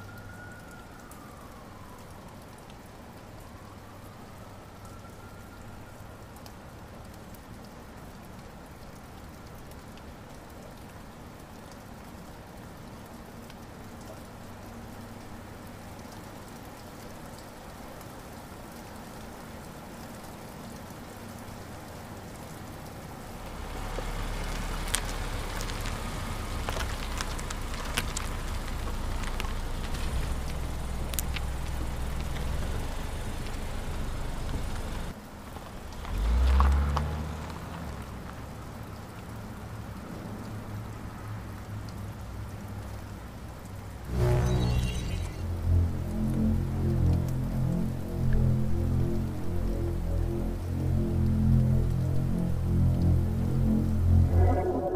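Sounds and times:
rain-like hiss: 0.0s - 54.9s
car engine rumble: 23.4s - 38.8s, 43.8s - 54.9s.

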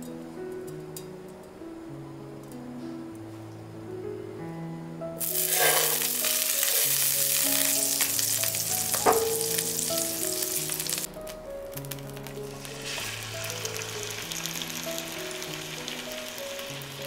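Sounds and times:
soft background music: 0.0s - 17.0s
butter sizzling in frying pan: 5.2s - 17.0s.

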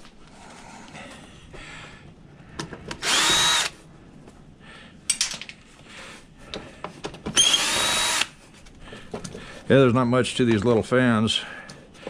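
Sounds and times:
cordless drill whining: 3.0s - 3.8s, 7.3s - 8.4s.

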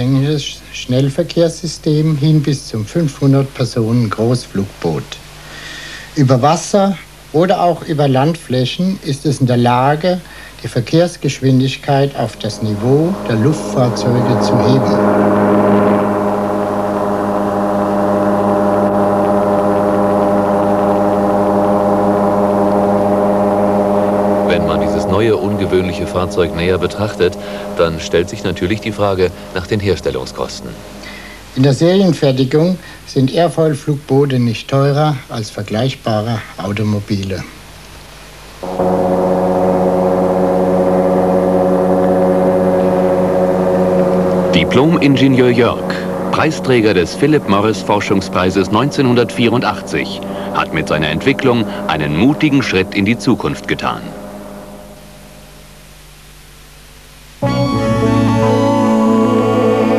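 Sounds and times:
engine drone: 11.4s - 33.0s, 38.5s - 56.8s, 57.4s - 59.9s.

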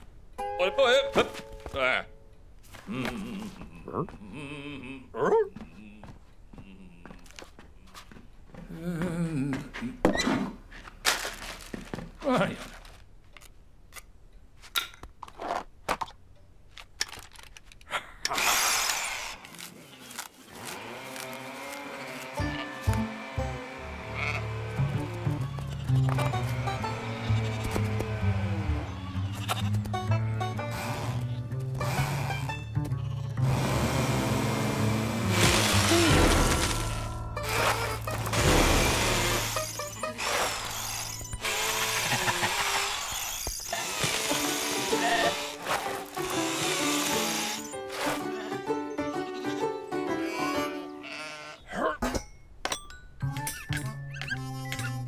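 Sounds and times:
background music: 0.0s - 2.5s, 22.2s - 41.5s, 44.0s - 51.1s
cordless drill whirring: 38.8s - 47.6s.

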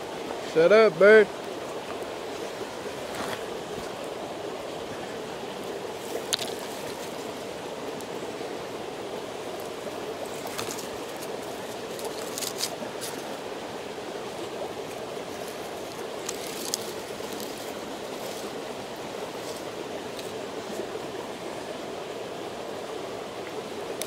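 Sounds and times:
steady rushing noise: 0.0s - 23.3s
campfire snaps and crackles: 5.6s - 8.2s, 9.4s - 20.6s.

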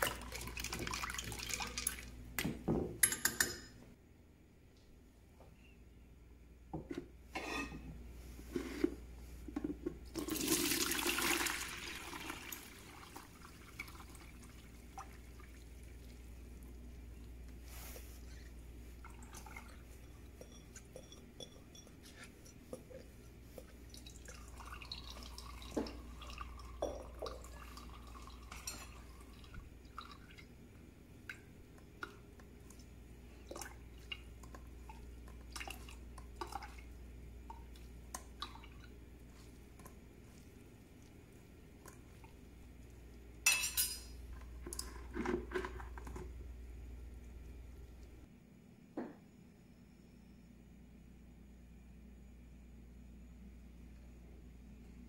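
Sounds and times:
water splashing into strainer: 0.0s - 2.1s.

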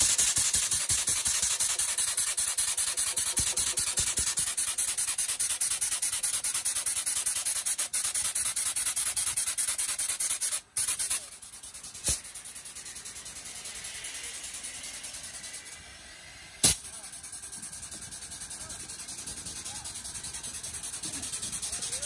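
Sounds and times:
grease gun pump chatter: 0.0s - 15.8s, 16.6s - 22.0s
sharp click: 16.6s - 16.9s.

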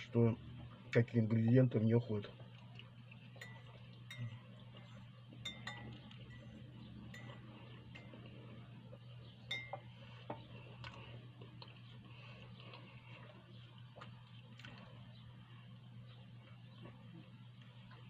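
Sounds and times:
faint steady hum: 0.0s - 18.0s
spoon clinking against glass: 3.4s - 4.5s, 5.4s - 8.1s, 9.5s - 9.9s.

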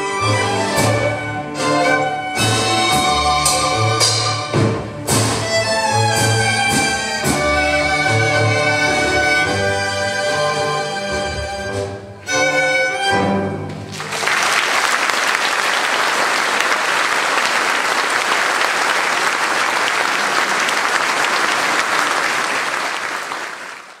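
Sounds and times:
string orchestra chords: 0.0s - 14.2s
audience applause: 13.7s - 24.0s.

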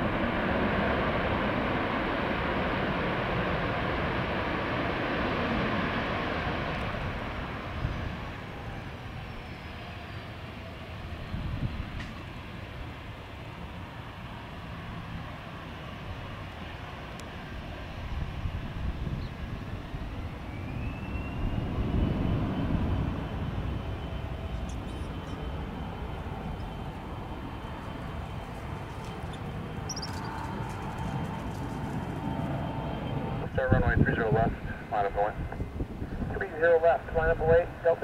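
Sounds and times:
jet engines rushing: 0.0s - 38.0s
high whine: 20.4s - 38.0s.

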